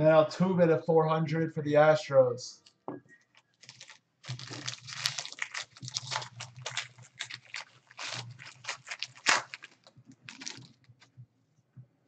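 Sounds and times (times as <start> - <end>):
foil wrapper crinkling: 3.3 - 11.2.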